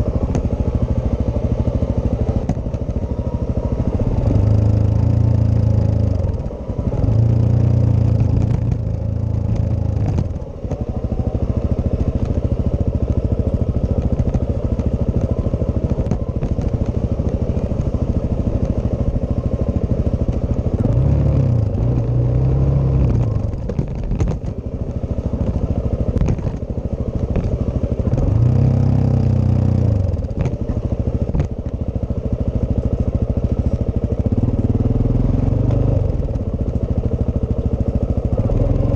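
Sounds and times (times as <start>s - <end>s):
motorcycle engine revving: 0.0s - 38.9s
bike knocks and rattles: 1.9s - 4.0s, 8.0s - 21.0s, 23.2s - 28.3s, 30.1s - 31.9s.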